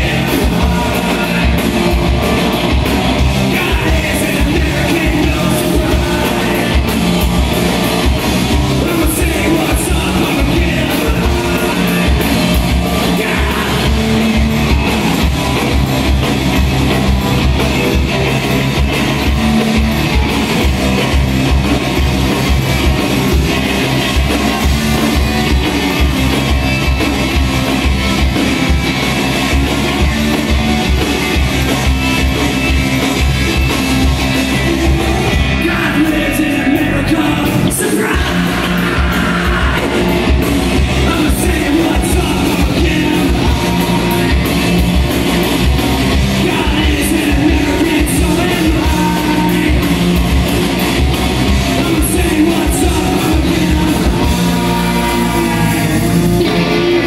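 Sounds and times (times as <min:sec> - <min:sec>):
person singing: 0:00.0 - 0:02.4, 0:03.4 - 0:07.1, 0:08.7 - 0:14.3, 0:34.9 - 0:44.5, 0:46.3 - 0:50.2, 0:51.7 - 0:56.7
electric guitars: 0:00.0 - 0:57.0
steady drum beat: 0:00.0 - 0:57.0.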